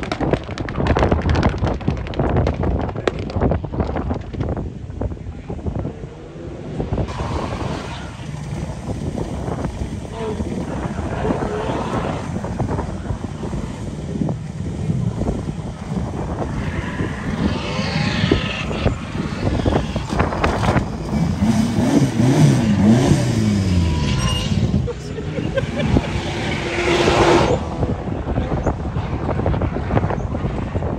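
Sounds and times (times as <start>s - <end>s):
race car engine revving: 5.7s - 30.2s.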